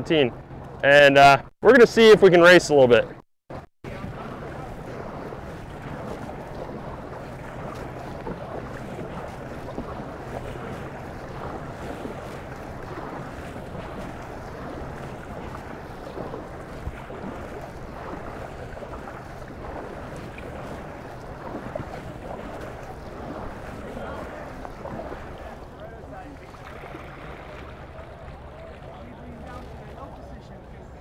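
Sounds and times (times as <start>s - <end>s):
paddle strokes and water splashing: 0.0s - 31.0s
wind buffeting microphone: 3.8s - 31.0s.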